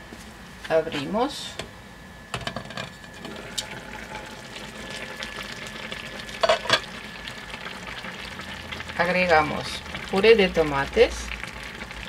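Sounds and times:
broth bubbling and sizzling: 3.1s - 12.0s.

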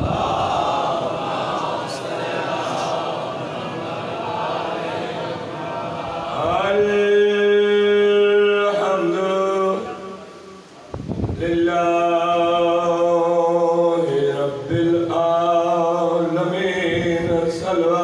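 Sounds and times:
man chanting through a microphone: 5.8s - 18.0s.

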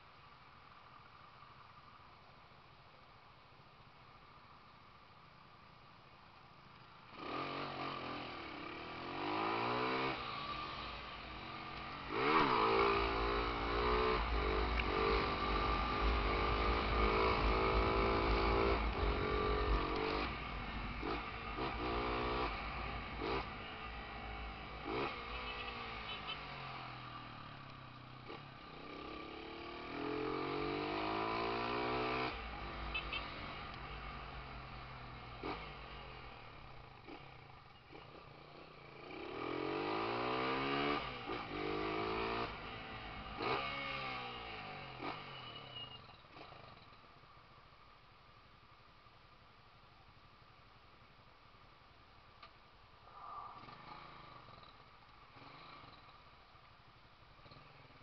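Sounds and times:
motorcycle engine accelerating: 7.1s - 46.9s.

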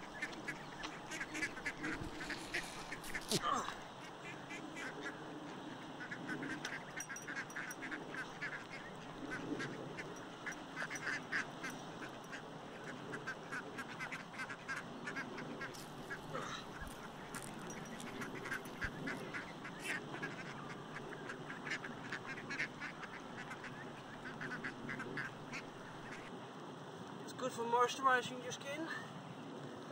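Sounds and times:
waterfowl calling: 0.0s - 3.4s, 5.8s - 26.3s.

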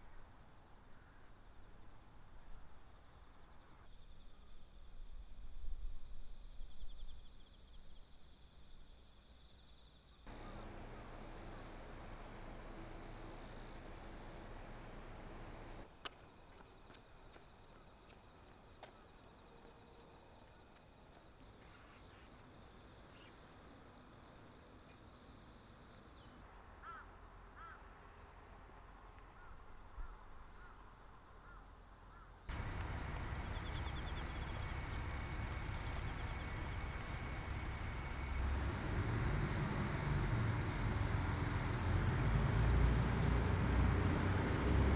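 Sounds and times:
insects droning: 0.0s - 44.9s
broad low rumbling noise: 32.5s - 44.9s.

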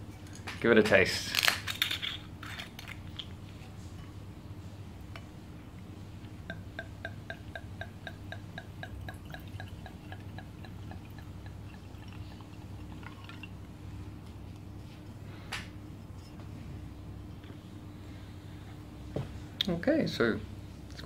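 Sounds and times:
wine glugging into a glass: 6.5s - 13.7s.

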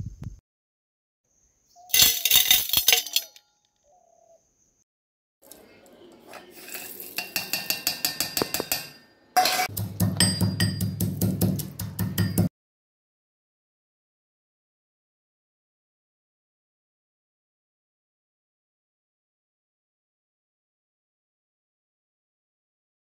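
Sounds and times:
kitchen utensils clinking: 1.9s - 3.5s, 5.4s - 10.9s
background music with beat: 9.7s - 12.5s.

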